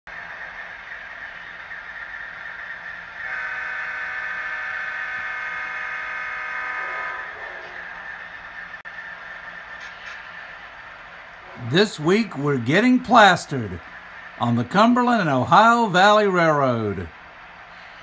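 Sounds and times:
train horn chord: 3.2s - 7.8s.

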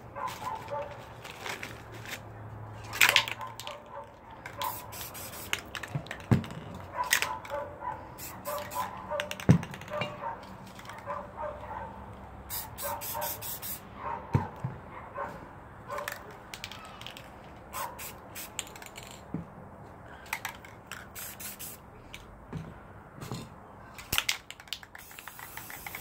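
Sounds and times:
spray paint can hissing: 4.6s - 5.9s, 8.2s - 9.5s, 12.5s - 13.8s, 17.7s - 19.2s, 21.0s - 21.8s, 24.1s - 26.0s.

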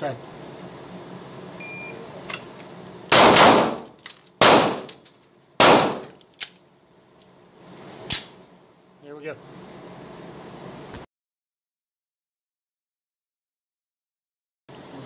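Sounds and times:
pistol shots ringing: 3.1s - 5.0s, 5.6s - 6.2s.

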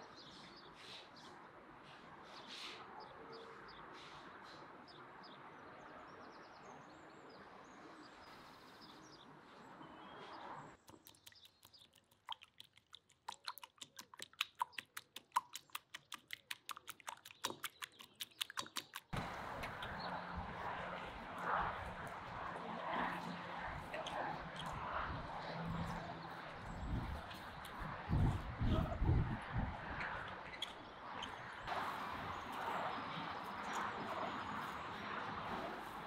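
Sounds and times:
steady outdoor hiss: 19.1s - 29.3s, 30.2s - 36.0s.

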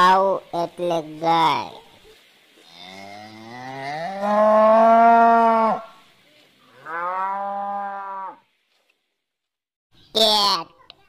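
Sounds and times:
cow mooing: 2.7s - 5.9s, 6.7s - 8.4s.

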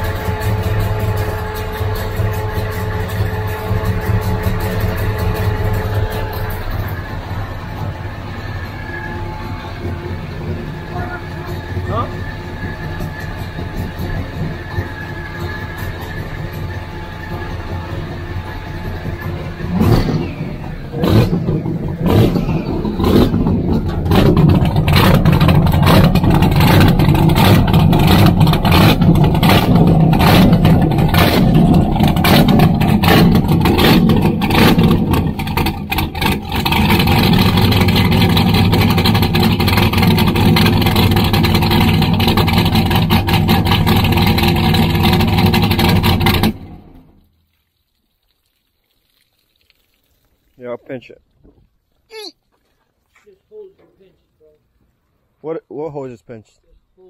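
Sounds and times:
boat engine running: 0.0s - 47.2s
water spraying and hissing: 47.4s - 50.8s.

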